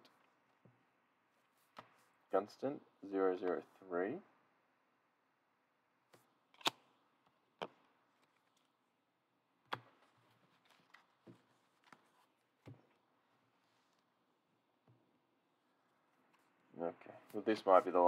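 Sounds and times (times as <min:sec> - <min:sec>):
light rustling of cards: 0:01.3 - 0:02.3, 0:07.6 - 0:09.0, 0:09.7 - 0:14.2, 0:15.8 - 0:18.0.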